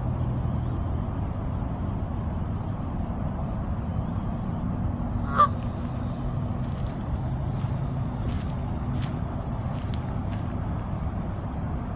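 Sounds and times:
steady low rumble: 0:00.0 - 0:11.9
goose honk: 0:05.3 - 0:05.6.

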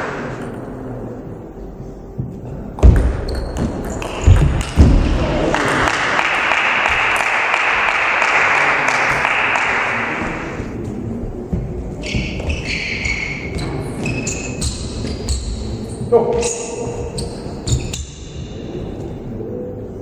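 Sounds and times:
crowd applause: 0:05.0 - 0:10.8.

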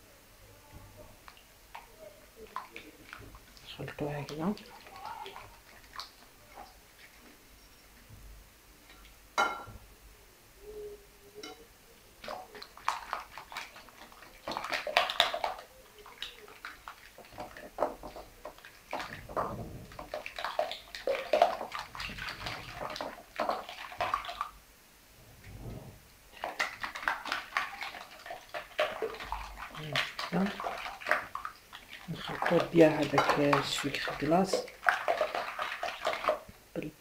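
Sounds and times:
whisk beating eggs in a bowl: 0:12.2 - 0:24.5, 0:26.3 - 0:36.5.

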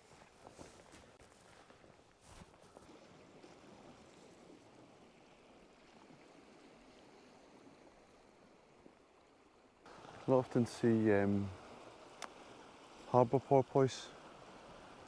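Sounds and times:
soft footsteps: 0:00.0 - 0:02.9
faint outdoor hiss: 0:00.0 - 0:15.0.

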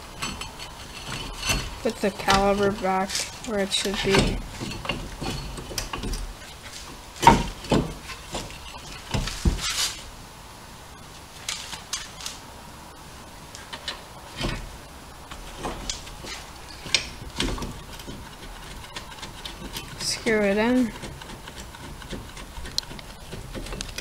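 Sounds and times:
metal knocking and clinking: 0:00.0 - 0:09.8, 0:15.3 - 0:24.0.

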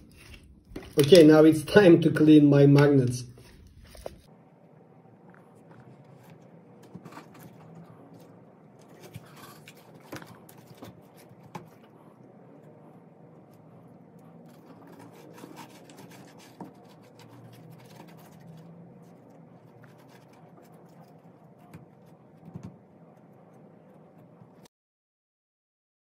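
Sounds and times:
scratching and rubbing: 0:05.3 - 0:24.7.

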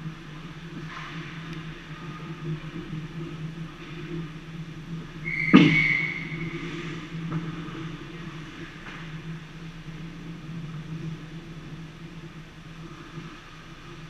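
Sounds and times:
low hum of ice rink: 0:00.0 - 0:14.0
high whistle tone: 0:05.2 - 0:06.6.

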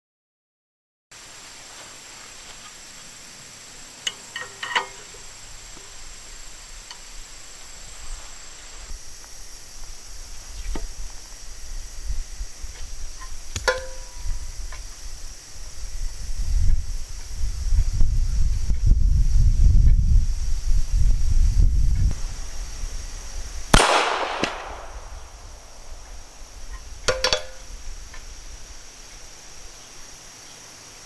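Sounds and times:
metal clinks: 0:04.0 - 0:05.2
steel plate ringing from hit: 0:13.7 - 0:14.2.

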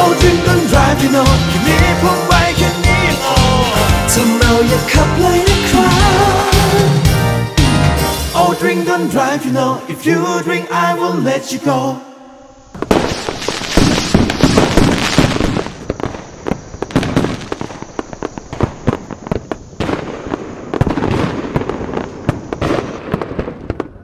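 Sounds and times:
fireworks crackling and banging: 0:12.7 - 0:24.0.

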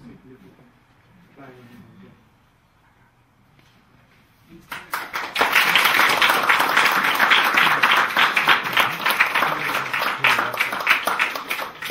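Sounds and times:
audience applauding: 0:04.7 - 0:11.9.

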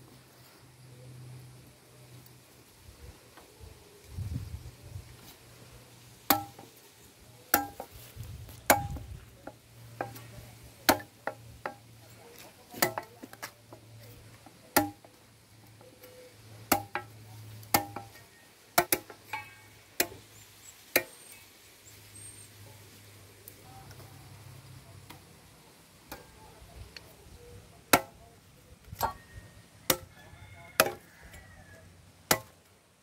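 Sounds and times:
machete chopping stems on stone: 0:06.3 - 0:06.8, 0:07.5 - 0:15.2, 0:15.8 - 0:18.2, 0:18.8 - 0:20.2, 0:20.9 - 0:21.2, 0:27.9 - 0:28.2, 0:29.9 - 0:30.1, 0:30.8 - 0:31.1, 0:32.3 - 0:32.6.

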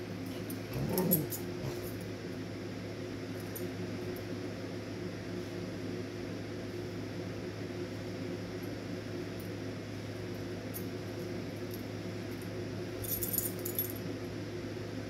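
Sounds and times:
steady low hum: 0:00.0 - 0:15.0
dog growling: 0:00.3 - 0:02.0.

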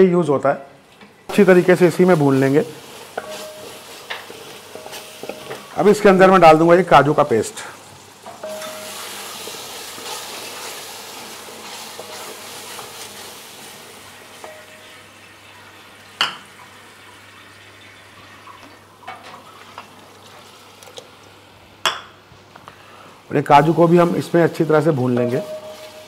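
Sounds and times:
wooden spatula stirring: 0:01.3 - 0:06.2, 0:08.6 - 0:13.8, 0:23.6 - 0:26.0
paste sizzling in a pan: 0:01.3 - 0:18.0, 0:22.9 - 0:26.0.

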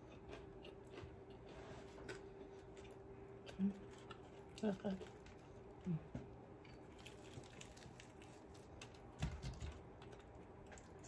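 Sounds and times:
crispy breading crackling: 0:06.8 - 0:11.0.

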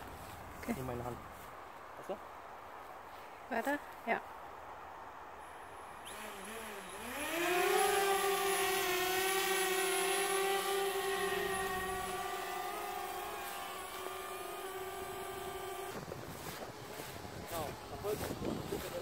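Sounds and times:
drone propellers buzzing: 0:05.4 - 0:19.0.

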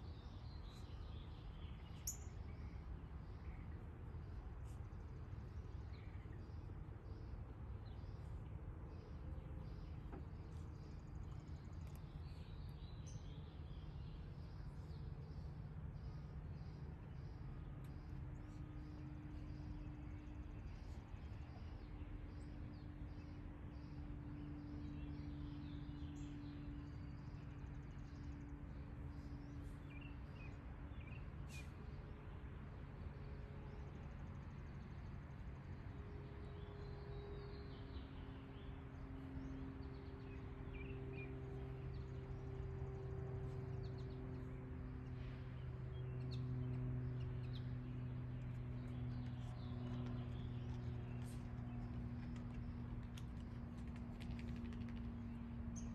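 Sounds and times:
bird chirps: 0:00.0 - 0:02.8
steady low hum: 0:00.0 - 0:55.9.

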